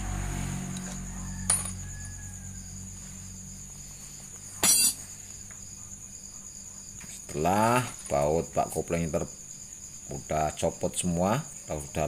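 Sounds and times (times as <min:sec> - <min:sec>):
insects chirping: 0:00.0 - 0:12.0
metal tools clattering: 0:04.6 - 0:05.0.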